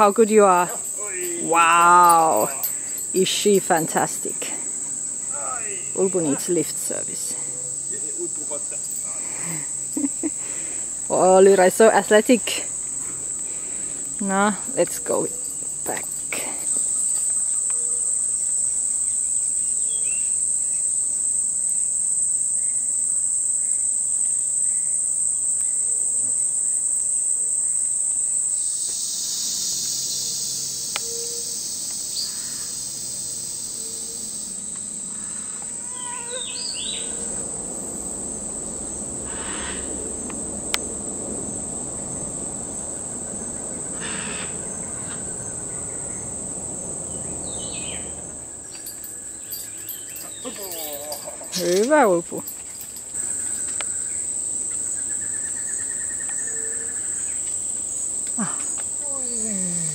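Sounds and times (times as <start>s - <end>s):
hissing insect chorus: 0.0s - 59.9s
insects droning: 0.0s - 59.9s
bird chirps: 35.9s - 37.2s, 47.1s - 51.6s.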